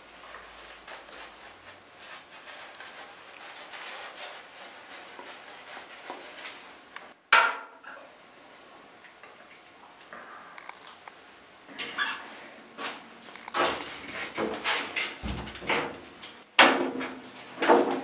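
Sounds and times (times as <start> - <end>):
shaving brush scratching on skin: 0.0 - 6.7.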